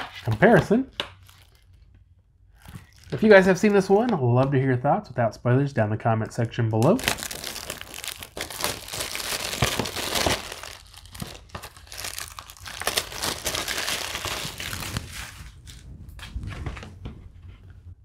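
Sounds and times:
plastic wrap crinkling: 0.0 - 4.1, 6.8 - 17.0.

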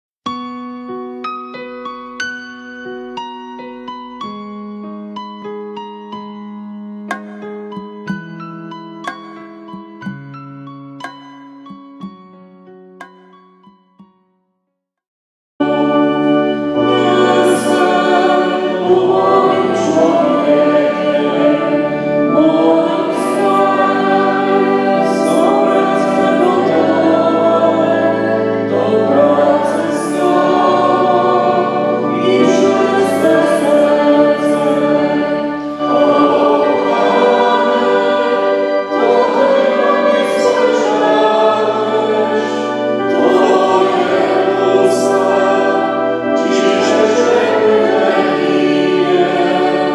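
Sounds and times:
choir singing a hymn: 15.6 - 49.9.

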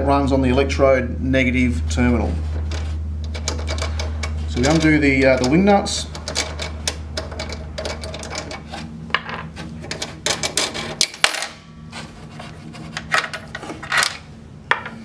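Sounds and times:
metal nuts clicking and rattling: 2.7 - 11.5.

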